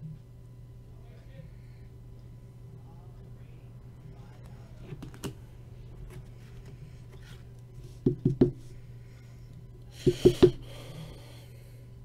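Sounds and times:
low steady hum: 0.0s - 12.0s
plastic knocking on tabletop: 8.0s - 8.6s.

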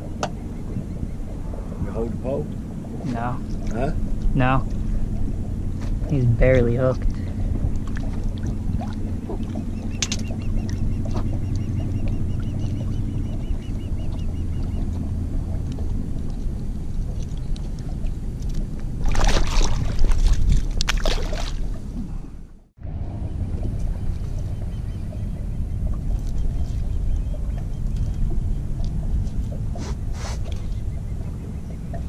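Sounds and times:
low rumble: 0.0s - 32.0s
stingray splashing at water surface: 19.0s - 21.8s.

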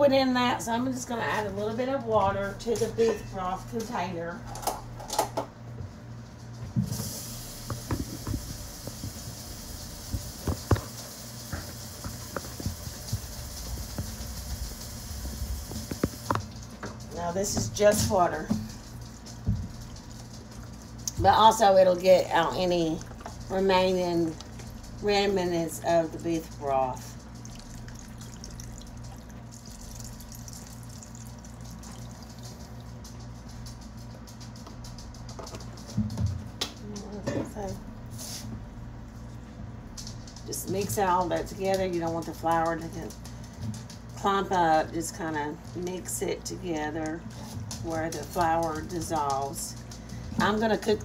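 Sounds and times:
steady low hum: 0.0s - 51.0s
tap water running: 6.7s - 33.4s
water pouring into a pot: 27.2s - 32.8s.

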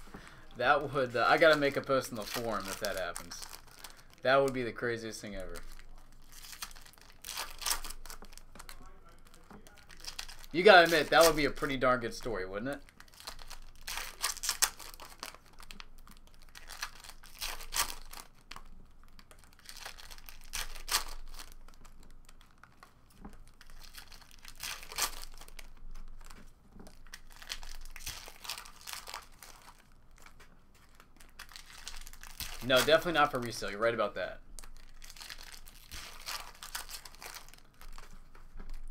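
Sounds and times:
foil wrappers crinkling and tearing: 0.0s - 38.9s
cards handled and stacked: 35.2s - 38.9s.

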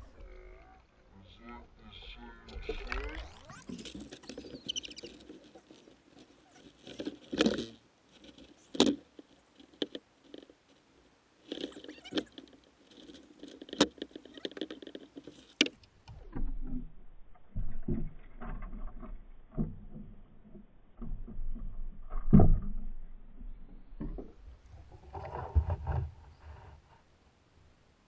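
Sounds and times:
sharp clicks and knocks: 11.4s - 24.4s.

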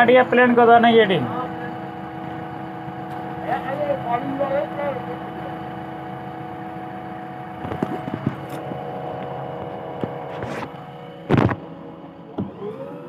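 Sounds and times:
machine engine idling: 0.0s - 13.0s
phone handling thump: 11.3s - 11.6s.

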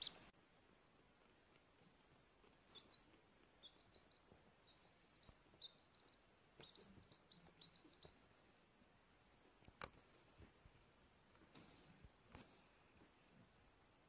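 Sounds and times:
chick peeping: 0.0s - 0.3s, 1.4s - 8.5s.

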